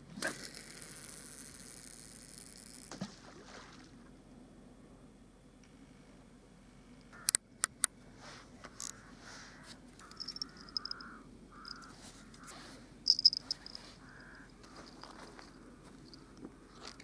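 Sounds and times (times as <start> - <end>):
low steady background hum: 0.0 - 17.0
short high chirping calls: 10.0 - 11.9.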